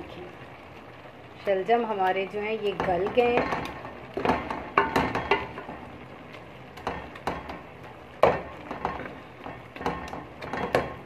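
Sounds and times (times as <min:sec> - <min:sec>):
wooden spoon stirring in pot: 0:00.1 - 0:11.0.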